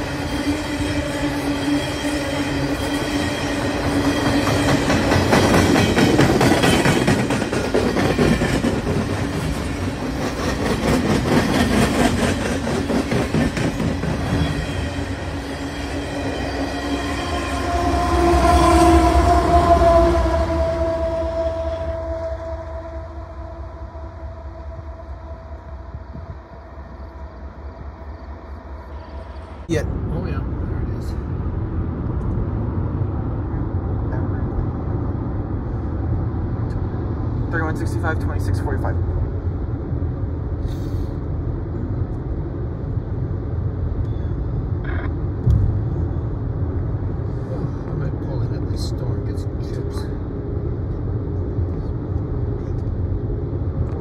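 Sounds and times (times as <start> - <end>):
diesel locomotive moving away: 0.0 - 54.0
road and tyre noise inside car: 28.9 - 54.0
thump: 45.4 - 45.8.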